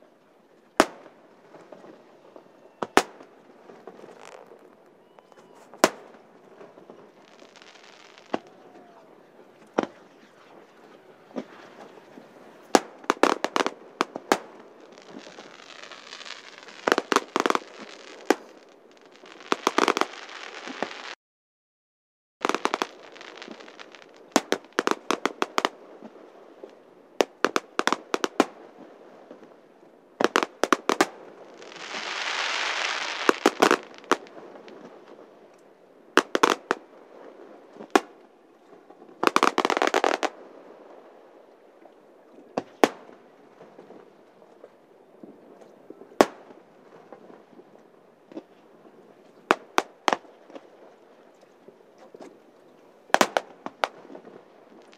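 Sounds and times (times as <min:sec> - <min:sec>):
firework crackling: 0:00.8 - 0:21.2, 0:22.4 - 0:28.7, 0:30.2 - 0:35.2, 0:36.2 - 0:38.2, 0:39.2 - 0:41.2, 0:53.1 - 0:54.9
firework hiss: 0:07.2 - 0:08.8, 0:14.3 - 0:21.2, 0:30.9 - 0:34.3.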